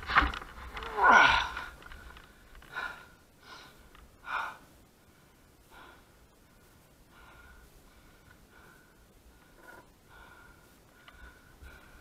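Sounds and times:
person breathing hard: 0:01.1 - 0:12.0.

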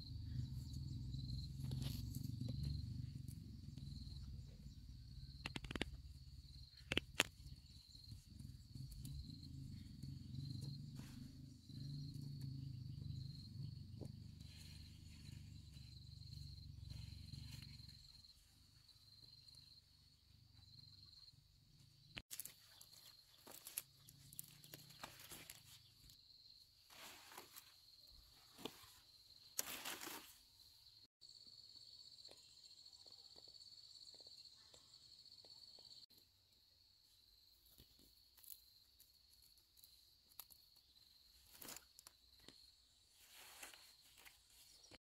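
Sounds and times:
leafy stems rustling and snapping: 0:22.3 - 0:25.7, 0:29.6 - 0:30.2, 0:41.4 - 0:42.1.

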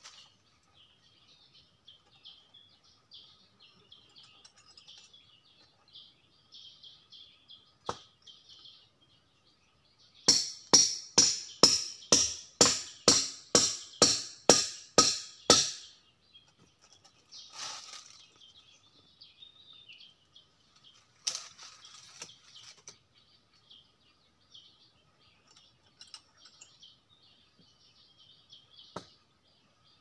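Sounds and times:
faint high bird chirps: 0:00.0 - 0:10.3, 0:15.4 - 0:30.0
sharp knocks: 0:10.3 - 0:15.9
boots and clothing rustling on tree: 0:17.3 - 0:18.8, 0:20.6 - 0:23.0.

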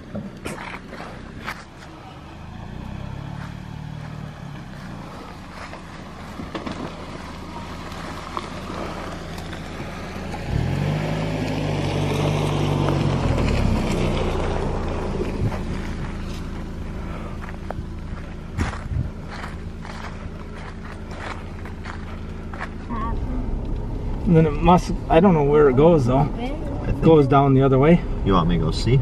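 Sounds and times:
tyres rustling on dry leaves: 0:00.0 - 0:22.9
suv engine crawling: 0:00.0 - 0:29.0.

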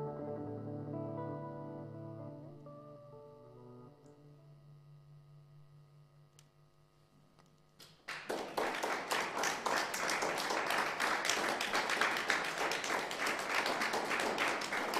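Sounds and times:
electric guitar note: 0:00.0 - 0:06.4
audience applause: 0:08.0 - 0:14.9.

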